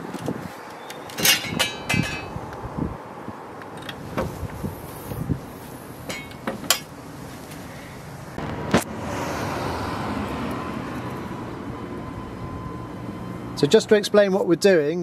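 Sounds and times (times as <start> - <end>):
metal clinks of car bonnet: 0.8 - 2.4, 6.1 - 6.9.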